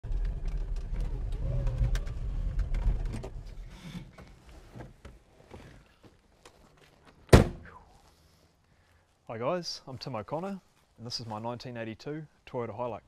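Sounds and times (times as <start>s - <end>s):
car door slamming: 7.3s - 7.6s.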